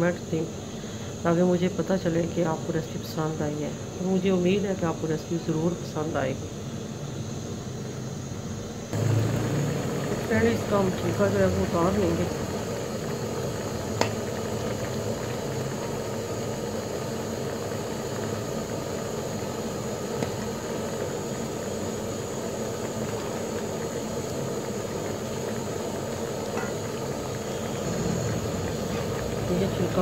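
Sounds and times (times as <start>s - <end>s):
pot of water simmering: 8.9s - 30.0s.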